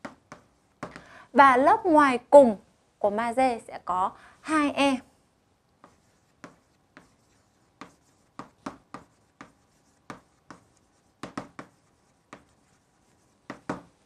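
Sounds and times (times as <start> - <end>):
chalk tapping and scratching: 0.0 - 1.1, 5.7 - 14.0.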